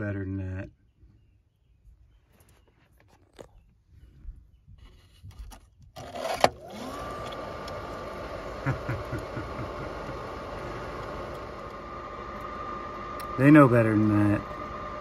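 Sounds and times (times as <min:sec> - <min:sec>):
pump motor whine: 0:06.0 - 0:15.0.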